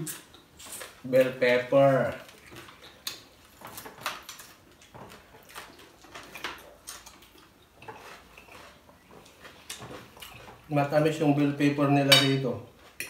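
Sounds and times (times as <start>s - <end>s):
people chewing: 0.0s - 1.4s, 2.0s - 10.7s.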